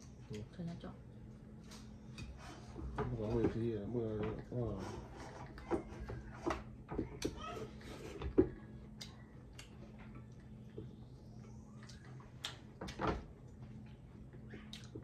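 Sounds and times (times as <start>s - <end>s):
chewing: 11.4s - 12.9s, 13.5s - 15.0s.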